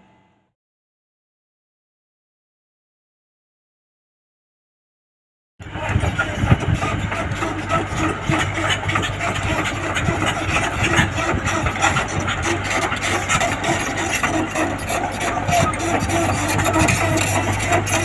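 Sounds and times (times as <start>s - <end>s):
excavator diesel engine running: 5.6s - 18.0s.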